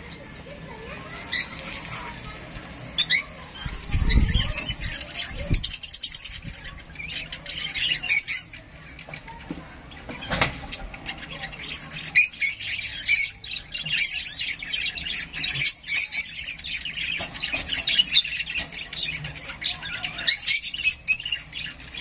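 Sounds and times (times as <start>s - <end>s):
parrot chick squawking: 0.0s - 9.4s.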